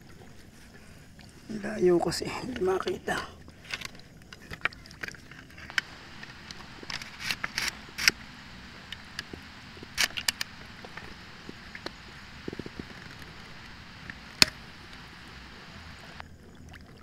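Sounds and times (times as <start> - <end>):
steady hiss: 5.5 - 16.2
sharp clicks and knocks: 5.7 - 15.0.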